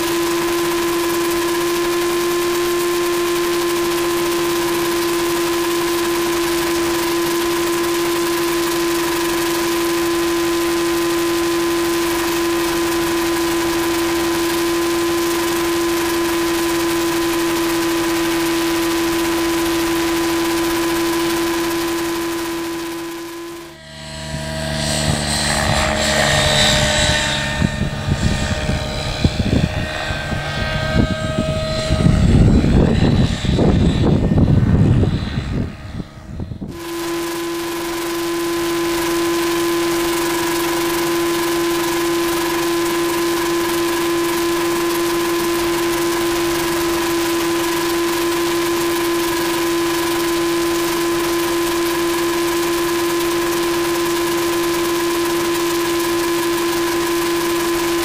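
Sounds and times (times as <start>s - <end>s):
drone with constant whine: 0.0s - 58.0s
model helicopter rotor: 0.0s - 58.0s.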